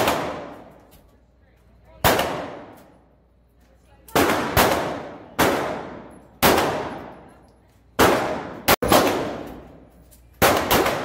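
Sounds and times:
handgun shots echoing indoors: 8.0s - 11.0s.

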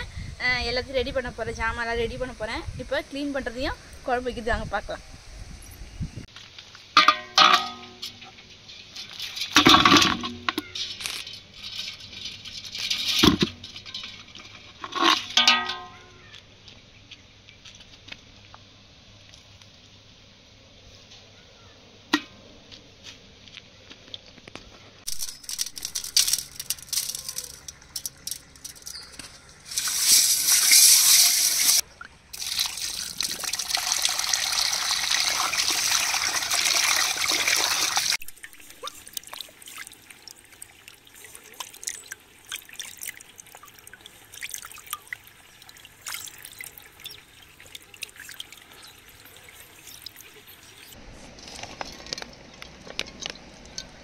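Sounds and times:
water pouring into metal vessel: 25.1s - 31.8s, 32.4s - 50.9s.

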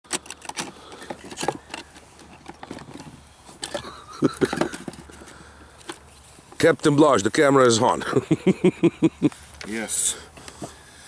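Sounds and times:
gear clicking and rattling: 0.0s - 6.0s.

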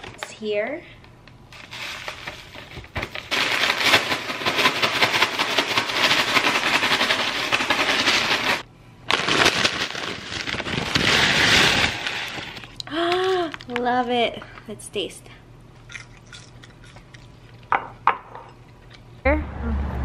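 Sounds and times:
paper bag of fries shaken: 1.6s - 13.7s.

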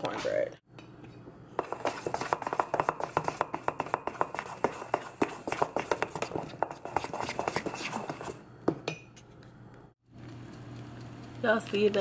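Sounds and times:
spatula scraping metal bowl: 1.6s - 8.4s.

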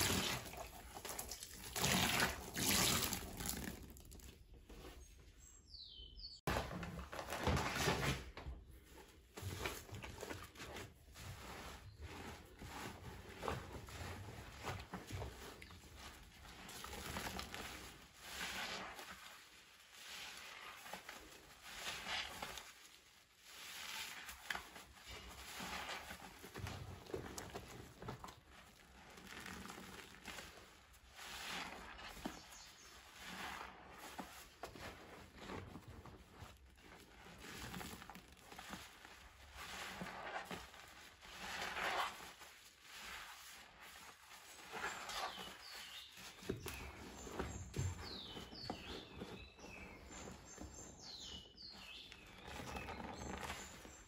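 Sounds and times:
wet sponge squelching: 0.0s - 5.6s, 8.7s - 54.0s
birds chirping: 4.7s - 6.5s, 44.8s - 54.0s.

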